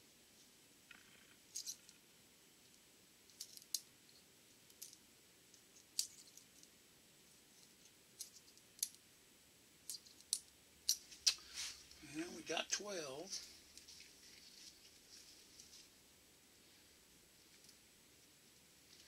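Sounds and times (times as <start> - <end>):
soft rustle: 9.8 - 19.0.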